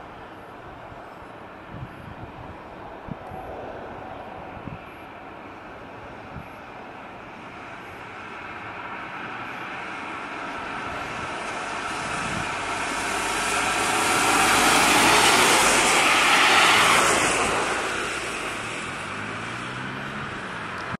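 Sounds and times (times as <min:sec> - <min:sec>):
car tyres hissing on wet road: 0:07.4 - 0:20.8.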